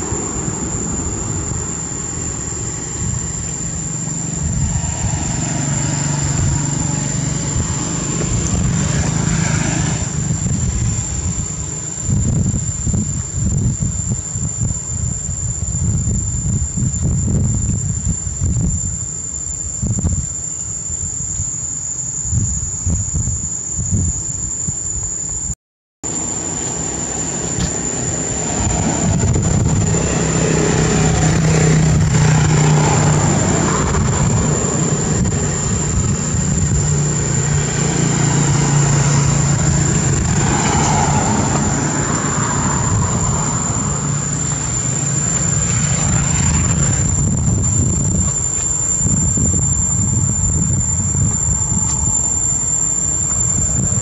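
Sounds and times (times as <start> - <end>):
vehicles passing: 0.0 - 14.1, 26.1 - 54.0
low drone: 0.0 - 25.4, 26.0 - 54.0
wind buffeting microphone: 0.0 - 25.6, 26.2 - 54.0
high insect drone: 0.0 - 54.0.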